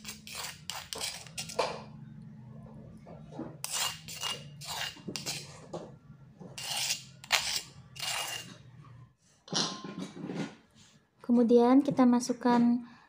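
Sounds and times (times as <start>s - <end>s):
metal spoon scraping stone mortar: 0.0s - 1.6s, 3.6s - 5.6s, 6.5s - 8.6s.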